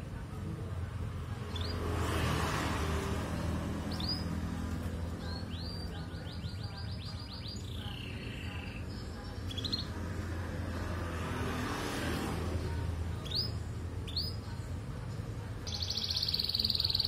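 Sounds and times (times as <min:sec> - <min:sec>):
canary chirping and trilling: 0:01.3 - 0:11.0, 0:12.6 - 0:14.8, 0:15.6 - 0:17.0.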